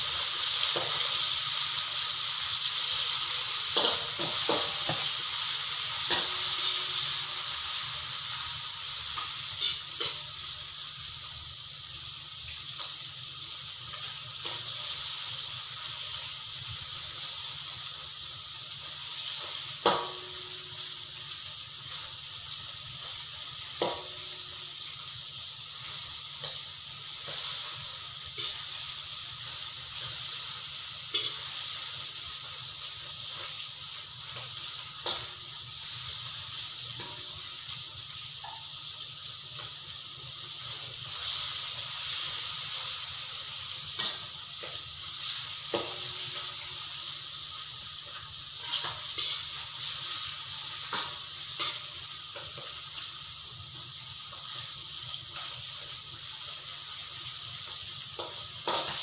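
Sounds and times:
squid sizzling in hot oil: 0:00.0 - 0:59.0
metal spatula scraping wok: 0:02.8 - 0:10.7, 0:27.2 - 0:32.0, 0:48.5 - 0:52.7.

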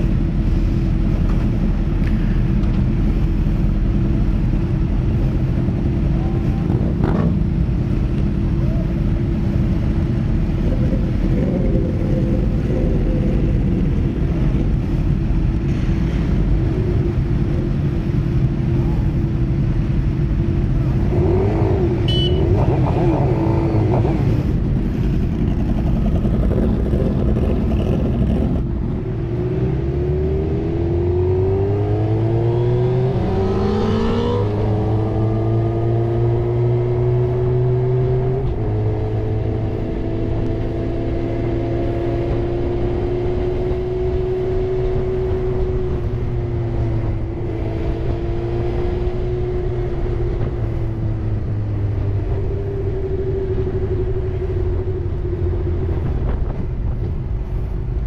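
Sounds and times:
motorcycle engines idling and revving: 0:00.0 - 0:58.0
motorcycle engine accelerating: 0:09.2 - 0:18.1, 0:20.4 - 0:57.3.

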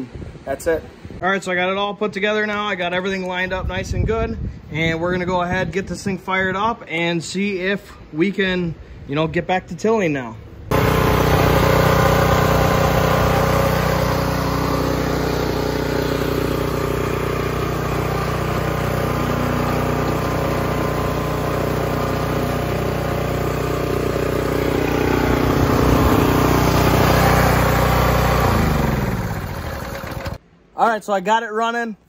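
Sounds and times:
small gas engine running: 0:10.7 - 0:30.4.

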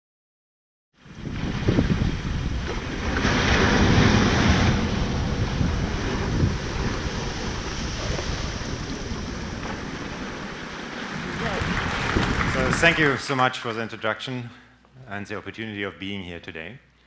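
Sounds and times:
ocean surf washing onto beach: 0:01.0 - 0:13.1
wind rumbling on microphone: 0:01.0 - 0:13.1.

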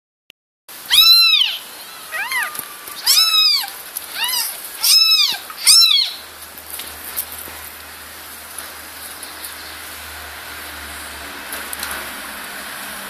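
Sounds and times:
kittens mewing: 0:00.8 - 0:06.3.

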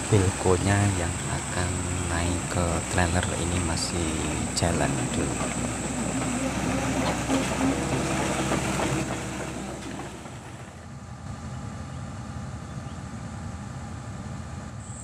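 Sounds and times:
tracks clattering: 0:00.0 - 0:10.9
excavator diesel engine running: 0:00.0 - 0:11.4.

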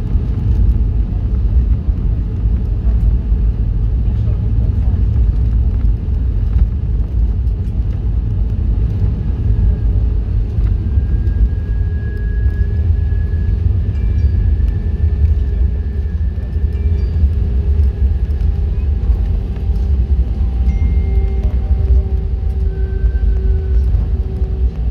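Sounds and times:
airplane cabin rumble: 0:00.0 - 0:24.9
thin steady whine: 0:09.0 - 0:24.9.

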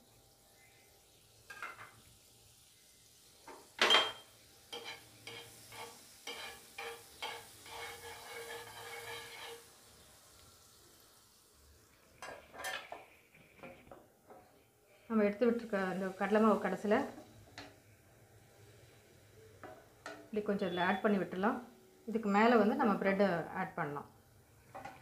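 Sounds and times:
butter sizzling in a pan: 0:00.0 - 0:25.0
spatula scraping a pan: 0:04.1 - 0:09.8
spatula clacking against pan: 0:04.7 - 0:09.2.

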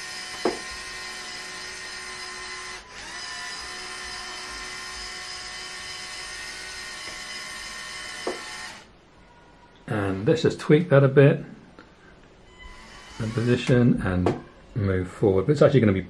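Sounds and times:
toy electric motors whining: 0:00.0 - 0:08.9, 0:12.5 - 0:13.8.

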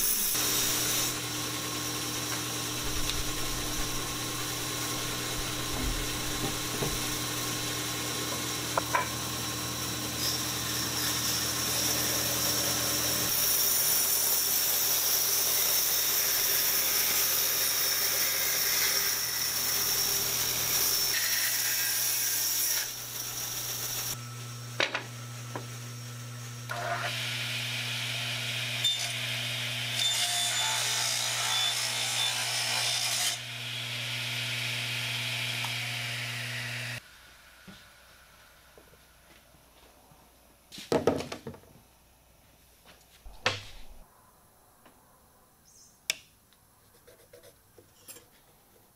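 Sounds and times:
bandsaw cutting wood: 0:00.0 - 0:24.2, 0:26.7 - 0:37.0.

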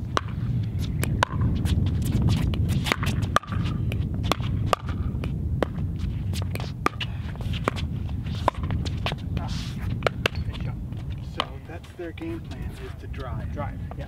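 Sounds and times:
low rumble: 0:00.0 - 0:14.0
ball bouncing on court: 0:01.0 - 0:05.8
paddles hitting plastic ball: 0:11.3 - 0:11.6.

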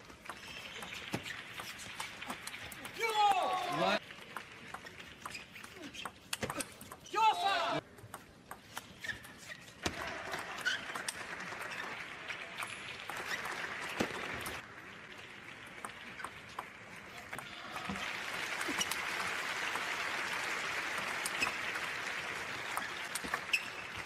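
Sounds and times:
indoor crowd noise: 0:00.0 - 0:24.0
applause and cheering: 0:02.0 - 0:04.7, 0:09.9 - 0:24.0.

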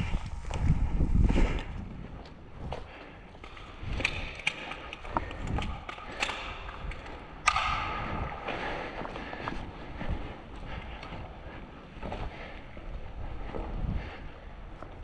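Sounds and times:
irregular clicks and knocks: 0:03.3 - 0:08.6
sharp crack: 0:07.4 - 0:08.5.

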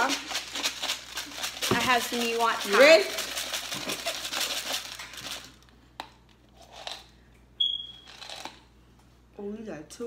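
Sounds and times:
jelly beans rattling in plastic container: 0:00.0 - 0:05.6.

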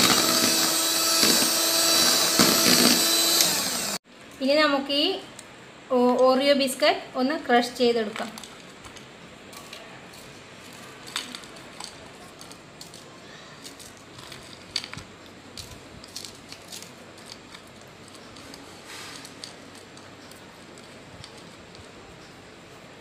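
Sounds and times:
biscuits crunching in a bowl: 0:08.4 - 0:21.7.

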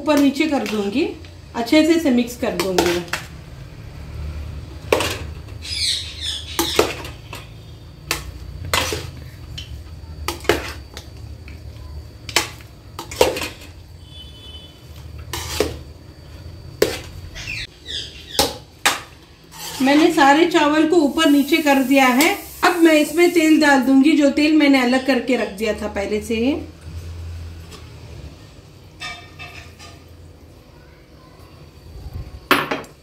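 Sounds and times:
squeaky scrapes: 0:19.5 - 0:20.1
spoon knocking metal pot: 0:29.0 - 0:30.0.

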